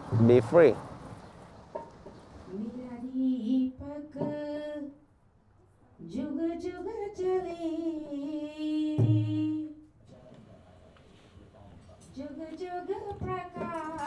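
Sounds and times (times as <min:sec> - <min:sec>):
woman singing: 0:02.5 - 0:05.0, 0:06.0 - 0:09.8, 0:12.2 - 0:14.0.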